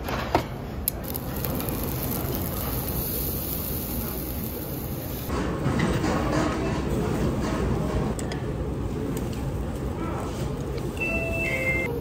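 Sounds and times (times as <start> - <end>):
meat sizzling on charcoal grill: 1.0 - 5.3.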